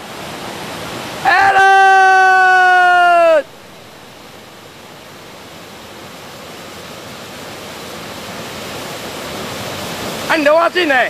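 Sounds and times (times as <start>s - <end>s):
waterfall rushing: 0.0s - 11.0s
loud long held shout: 1.2s - 3.5s.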